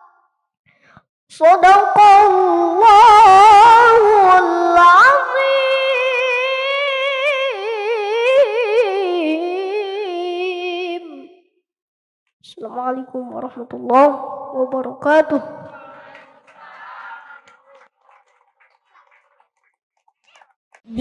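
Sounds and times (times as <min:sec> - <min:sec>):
boy reciting melodically: 0:01.3 - 0:11.3, 0:12.5 - 0:16.1.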